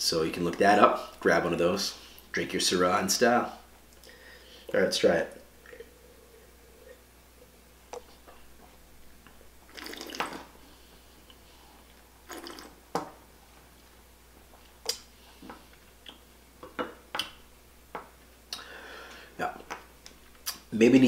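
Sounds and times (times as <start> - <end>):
tongue clicks: 14.8 - 15.1
wet lip smacks: 14.8 - 15.1.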